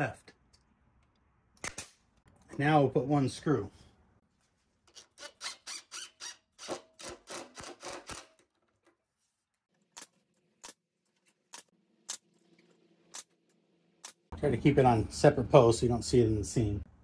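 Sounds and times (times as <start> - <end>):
brad nailer shots: 5.1 - 8.5.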